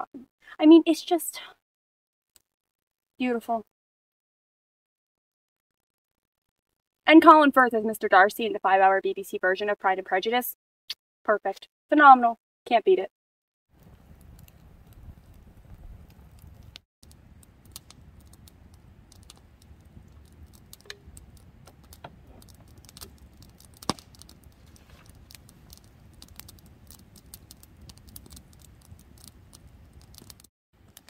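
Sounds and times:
campfire crackling and popping: 13.7s - 31.0s.

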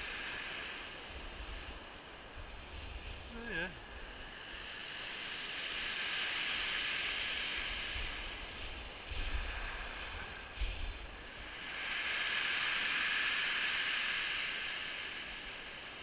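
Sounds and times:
surf washing over shingle: 2.6s - 3.8s.

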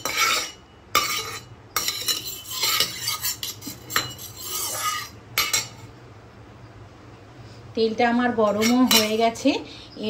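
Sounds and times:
metal skimmer scraping a pan: 0.0s - 5.8s.

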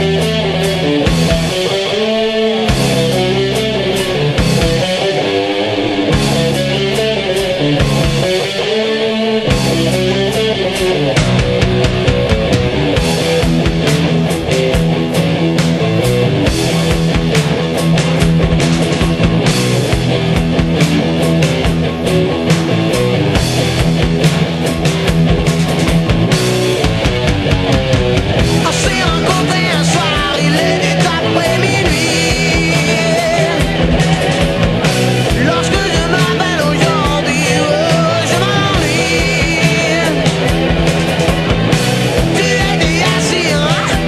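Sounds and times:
electric guitar lead: 0.0s - 44.0s
loud rock music: 0.0s - 44.0s.

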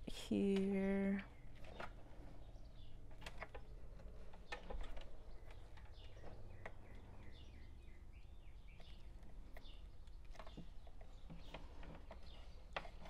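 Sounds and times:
faint high chirping calls: 0.8s - 13.0s
power cord clicks and rustles: 1.5s - 7.0s.

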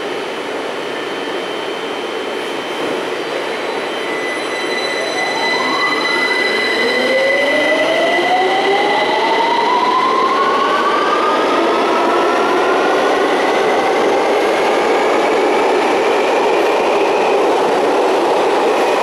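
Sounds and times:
train standing high whine: 0.0s - 19.0s
train traction whine: 0.0s - 19.0s.

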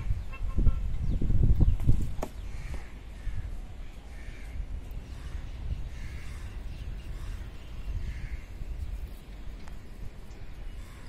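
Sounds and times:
steady low rumble: 0.0s - 11.0s
crow cawing: 2.5s - 8.6s, 10.7s - 11.0s.

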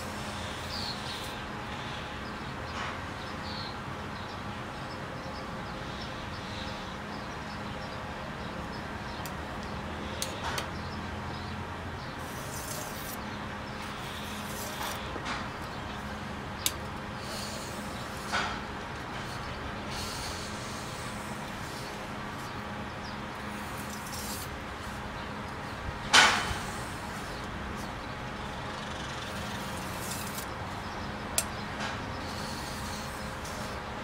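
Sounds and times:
steady low hum: 0.0s - 34.0s
knife scraping on whetstone: 13.8s - 15.1s, 29.2s - 30.5s.

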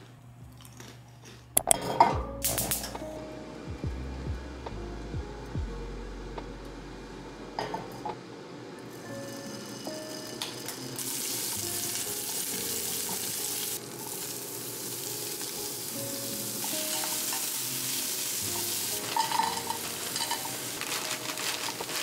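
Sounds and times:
vegetables sizzling in a frying pan: 9.4s - 22.0s
vegetables rattling into pan: 16.6s - 17.6s, 18.5s - 22.0s.

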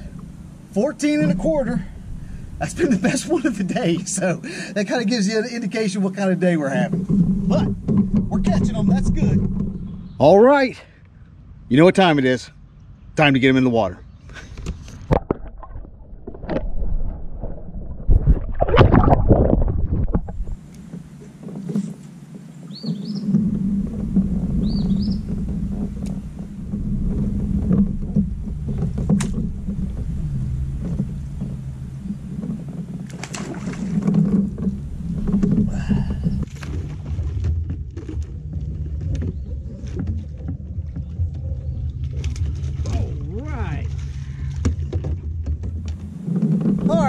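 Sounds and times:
pedal drive humming: 0.0s - 16.6s, 18.8s - 47.0s
short rising bird chirps: 24.6s - 25.3s.

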